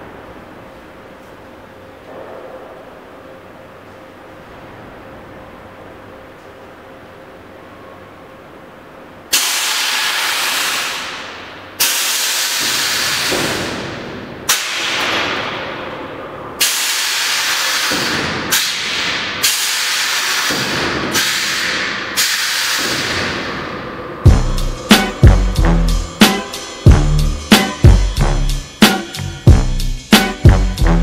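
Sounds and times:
air suspension hissing: 16.6 - 30.6.

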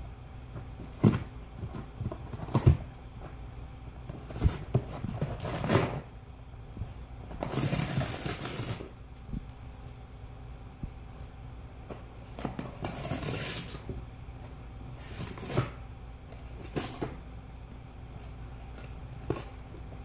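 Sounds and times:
cardboard ripping: 4.2 - 6.1, 7.4 - 9.0, 12.4 - 13.8.

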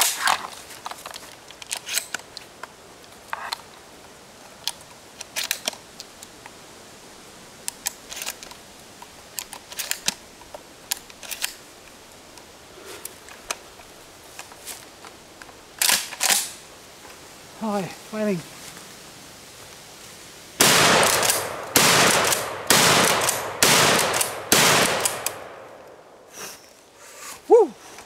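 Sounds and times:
sharp metallic clicks of shotgun: 10.9 - 11.6, 15.8 - 16.6, 20.6 - 26.0.

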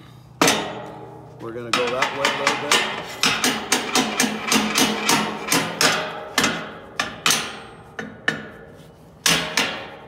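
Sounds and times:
metal knocks on steel plates: 0.4 - 1.0, 1.7 - 8.5.

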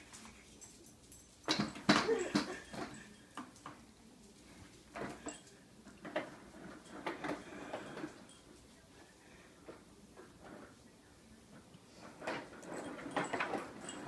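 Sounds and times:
baby walker rolling on tile floor: 5.8 - 8.4, 11.9 - 14.0.

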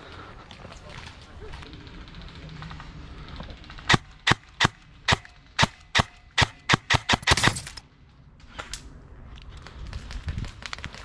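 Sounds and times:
airsoft gun shots: 3.9 - 7.6.

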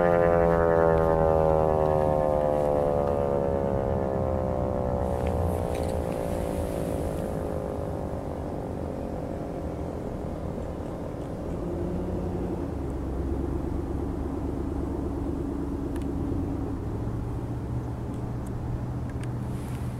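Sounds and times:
warning siren winding down: 0.0 - 10.6, 11.4 - 17.6
vehicle engine rumbling: 0.0 - 19.9.

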